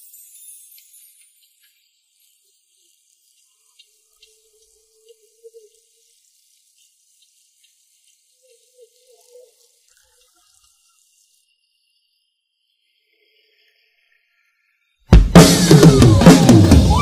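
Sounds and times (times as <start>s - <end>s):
faint wavering tone: 0.0s - 2.2s
trickling water with drips: 0.0s - 14.9s.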